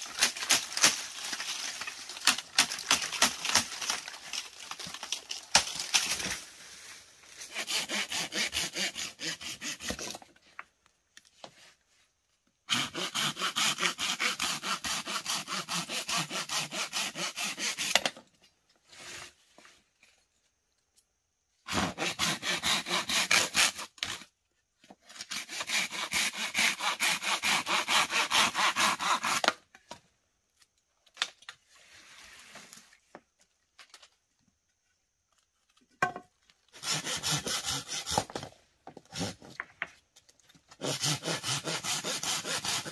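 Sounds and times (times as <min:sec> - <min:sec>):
hand saw cutting bamboo: 0:00.0 - 0:06.3, 0:07.4 - 0:10.3, 0:12.7 - 0:18.2, 0:21.7 - 0:24.2, 0:25.1 - 0:29.6, 0:36.7 - 0:39.5, 0:40.7 - 0:42.9.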